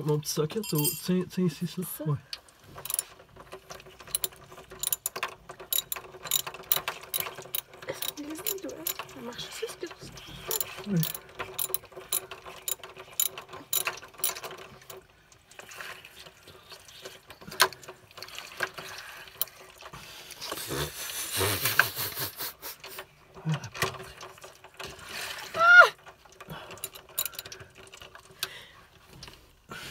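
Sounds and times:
socket ratchet clicking: 2.8 - 3.0, 4.1 - 9.1, 10.5 - 14.5, 26.8 - 27.5.

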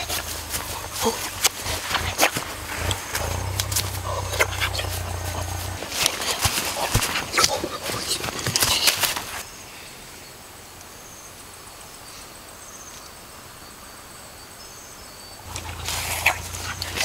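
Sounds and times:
footsteps rustling through grass: 0.0 - 9.6, 15.5 - 17.0
insects chirping: 0.0 - 17.0.

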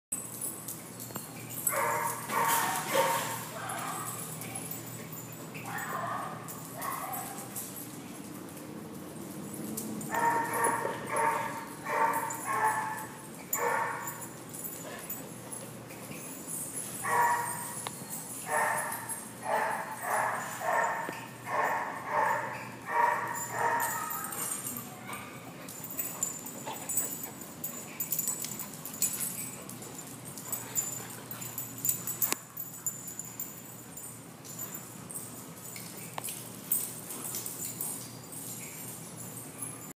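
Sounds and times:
dogs barking and yipping: 0.2 - 39.9
dog barking: 1.7 - 4.2, 5.7 - 7.4, 10.1 - 14.2, 17.0 - 17.6, 18.5 - 24.4.

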